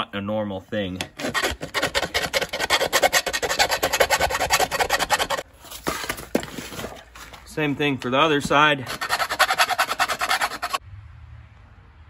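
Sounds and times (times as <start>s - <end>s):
file rasping in metal bore: 1.1s - 5.4s, 8.8s - 10.8s.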